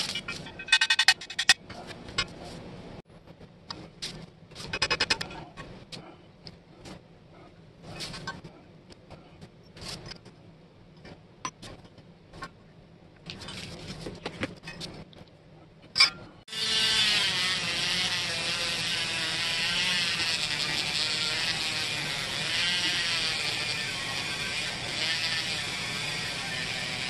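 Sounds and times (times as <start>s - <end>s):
small metal parts clicking and scraping: 0.0s - 1.6s
rotary tool whirring: 16.5s - 27.0s.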